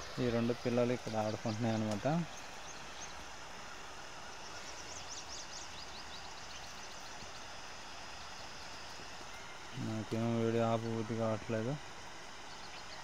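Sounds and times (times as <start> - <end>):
steady outdoor hiss: 0.0 - 13.0.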